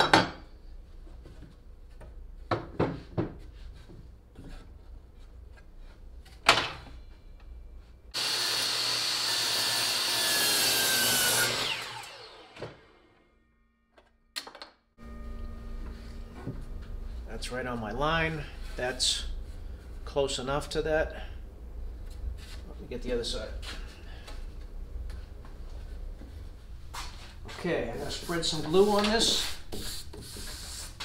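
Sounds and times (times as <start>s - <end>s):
miter saw cutting plywood: 8.2s - 13.4s.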